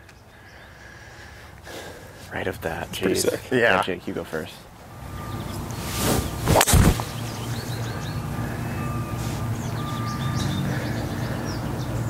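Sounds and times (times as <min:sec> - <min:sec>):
engine hum: 0:04.4 - 0:12.0
golf ball struck crack: 0:06.4 - 0:07.2.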